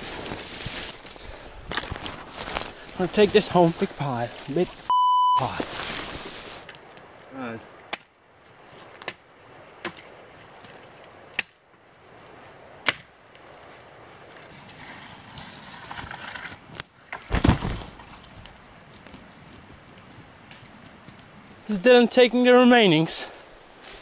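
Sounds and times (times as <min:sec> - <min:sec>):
footsteps crunching through leaves: 0:00.0 - 0:07.8, 0:11.8 - 0:16.0, 0:23.2 - 0:24.0
axe chopping wood: 0:12.8 - 0:13.1.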